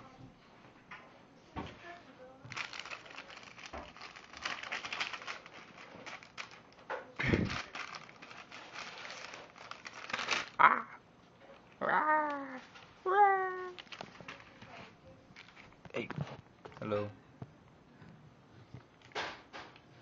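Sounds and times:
paper rustling on carpet: 2.5 - 10.6.

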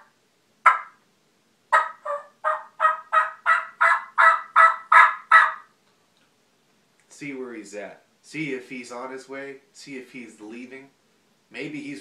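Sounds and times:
turkey call yelps: 0.0 - 1.0, 1.7 - 5.8.

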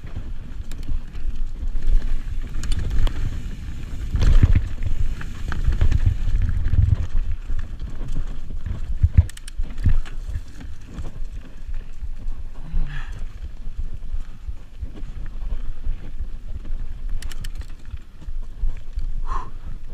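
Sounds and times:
bike rattling and knocking: 0.0 - 12.3
bike tires rumbling over dirt: 0.0 - 19.9.

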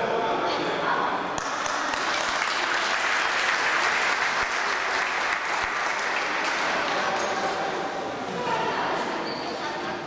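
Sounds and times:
people applauding: 1.4 - 7.6.

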